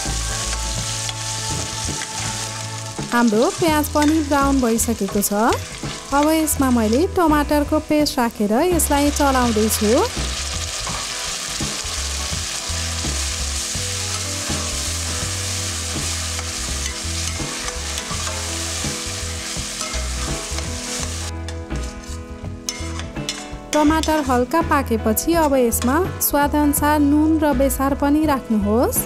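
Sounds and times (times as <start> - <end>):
paste sizzling in hot oil: 0.0 - 21.3
background music: 0.0 - 29.0.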